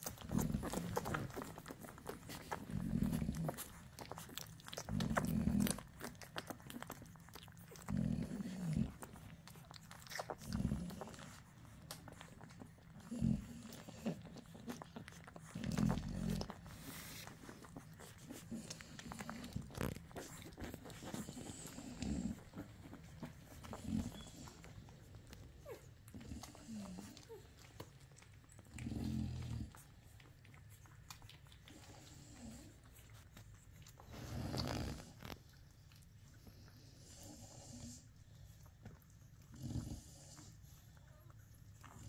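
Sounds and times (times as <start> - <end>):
puppies suckling: 0.0 - 42.0.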